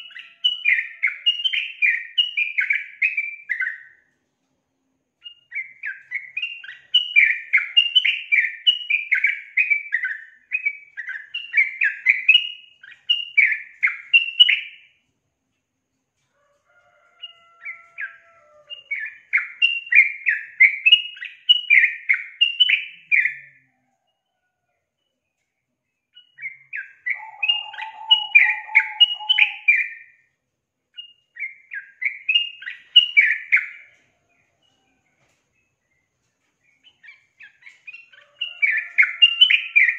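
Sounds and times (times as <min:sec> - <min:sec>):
bird chirping rapidly: 0:26.2 - 0:30.2.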